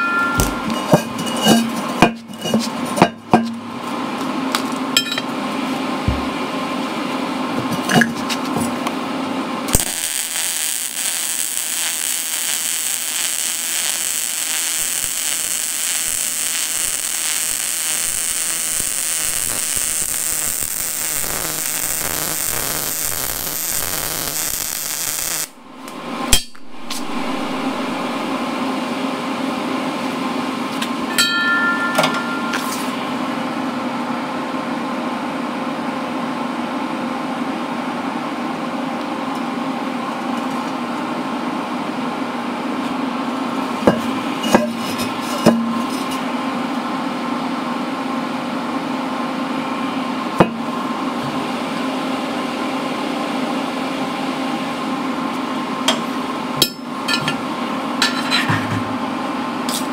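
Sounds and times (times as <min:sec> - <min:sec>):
steady hum: 0:00.0 - 0:35.6
arc welding crackling hiss: 0:09.7 - 0:28.4.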